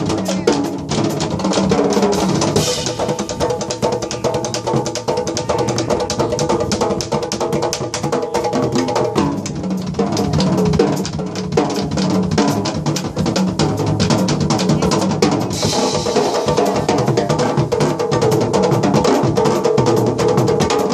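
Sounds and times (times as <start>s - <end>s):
jazz band playing: 0.0s - 19.3s
drum kit: 0.0s - 20.9s
hand drums beating rapid rhythm: 0.0s - 20.9s
cymbal crash: 15.5s - 16.9s.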